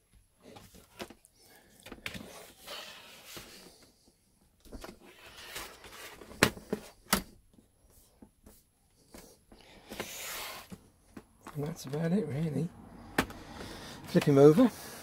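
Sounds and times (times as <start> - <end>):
plastic laptop case scraping: 2.0 - 3.9, 4.8 - 7.0, 9.8 - 10.8.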